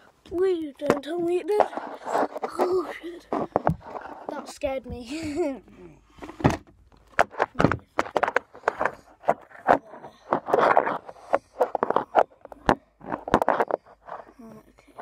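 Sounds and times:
phone handling knocks and rustling: 3.3s - 5.3s, 6.2s - 14.2s.

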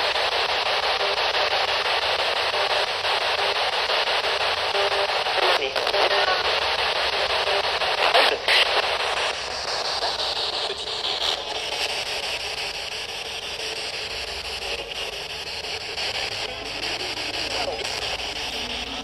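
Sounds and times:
static crackles: 0.0s - 19.0s
static hiss: 0.0s - 19.0s.

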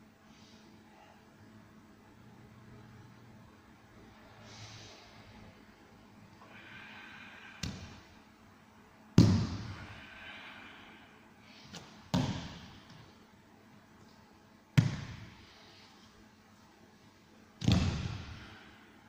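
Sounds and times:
body slapping on training mat: 9.2s - 9.8s, 11.8s - 13.0s, 14.8s - 15.4s, 17.6s - 18.4s.

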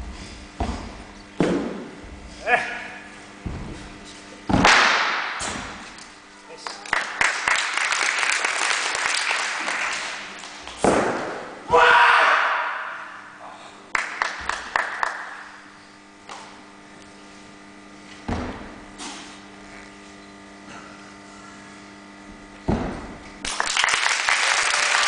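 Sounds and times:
audience applause: 6.6s - 10.2s, 23.5s - 25.0s.

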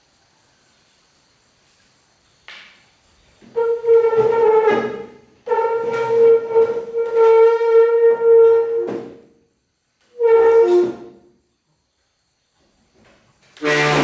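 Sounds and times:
bed legs scraping tile floor: 3.2s - 9.3s, 10.1s - 11.3s, 13.0s - 14.0s.

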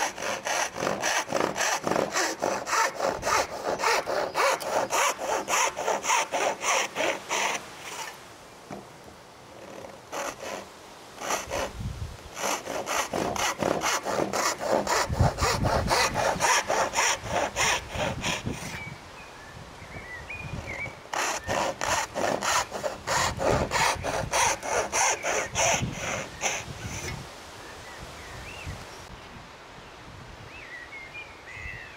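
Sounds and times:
saw cutting wooden board: 0.0s - 8.8s, 9.5s - 11.8s, 12.4s - 18.8s, 21.1s - 27.2s.

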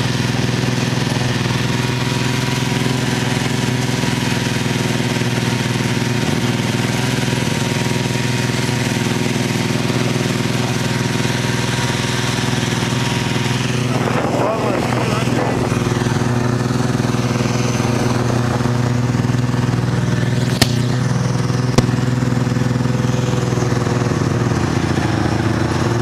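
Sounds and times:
snowmobile engine running: 0.0s - 26.0s.

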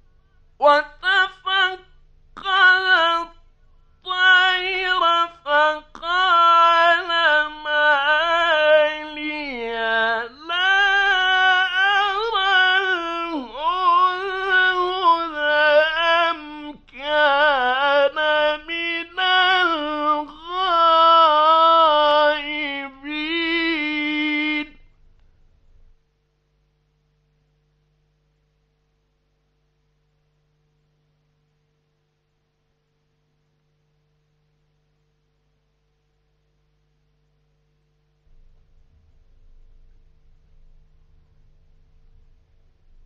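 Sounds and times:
man chanting melodically: 4.1s - 24.8s.

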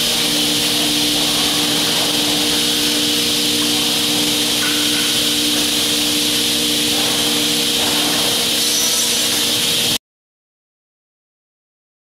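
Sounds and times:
loud hiss: 0.0s - 10.0s
machine spindle motors humming: 0.0s - 10.0s.

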